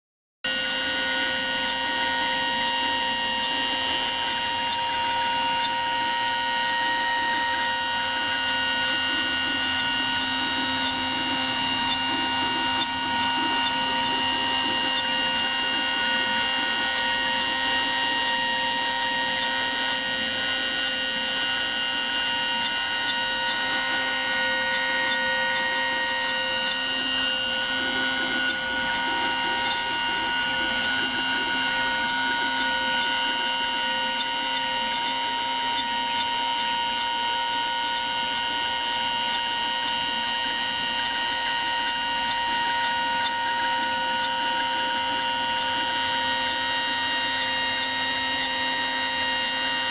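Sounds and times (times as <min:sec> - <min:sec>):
router spindle whine: 0:00.4 - 0:49.9
bit rasping through wood: 0:01.2 - 0:37.8.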